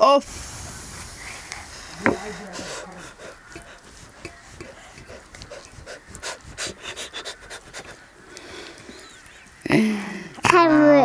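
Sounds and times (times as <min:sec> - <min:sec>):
fingers squelching food on plate: 0:01.5 - 0:09.7.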